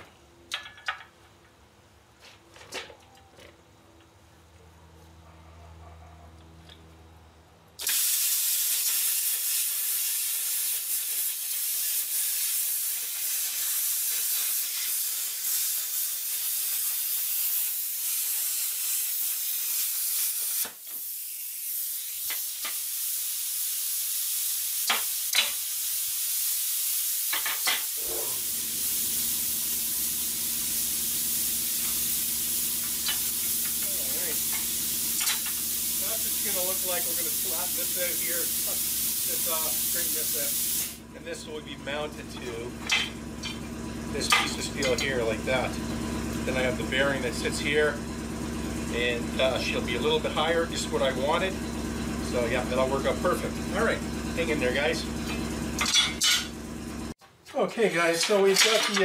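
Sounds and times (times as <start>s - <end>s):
plasma cutter hissing: 7.8s - 41.1s.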